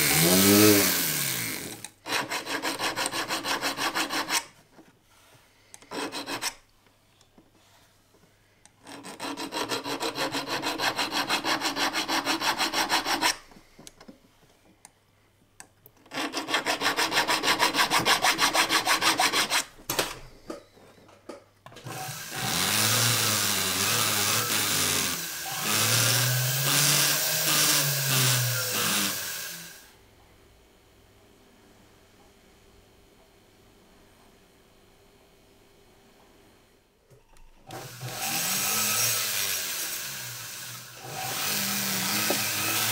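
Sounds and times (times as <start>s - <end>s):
rotary tool grinding: 0.0s - 4.5s, 8.8s - 13.4s, 21.9s - 29.7s, 37.7s - 42.9s
needle file rasping on metal: 2.1s - 4.5s, 5.8s - 6.6s, 8.8s - 13.4s, 16.1s - 19.7s.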